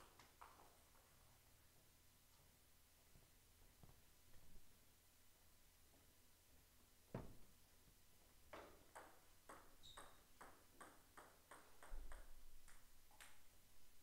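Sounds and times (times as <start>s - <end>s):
table tennis ball bouncing: 8.5s - 13.5s.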